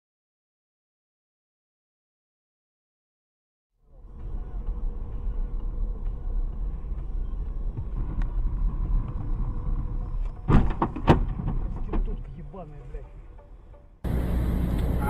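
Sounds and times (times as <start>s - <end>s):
car road and engine rumble: 3.8s - 15.0s.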